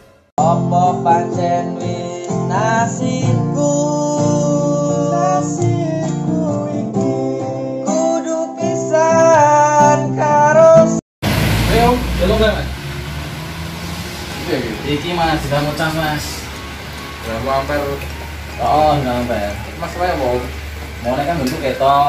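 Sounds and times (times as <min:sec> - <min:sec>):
person singing: 0:00.4 - 0:11.0.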